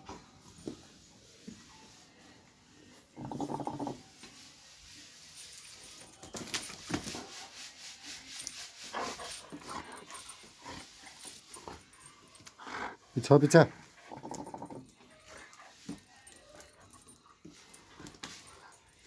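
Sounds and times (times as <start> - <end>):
dog brushing against phone: 4.0 - 11.5.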